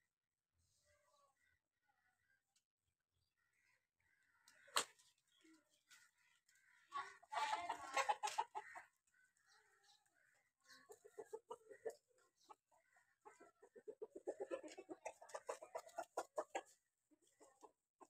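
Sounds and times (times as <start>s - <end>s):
chicken clucking: 4.5s - 18.0s.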